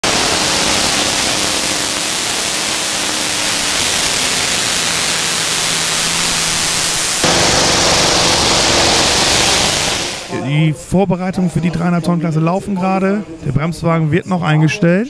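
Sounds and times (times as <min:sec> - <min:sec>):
tractor engine hissing roar: 0:00.0 - 0:10.3.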